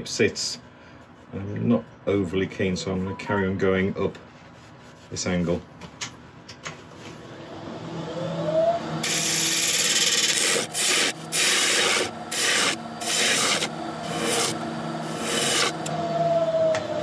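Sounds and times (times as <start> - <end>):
lathe motor hum: 7.2 - 17.0
gouge hissing cuts on wood: 9.0 - 15.9.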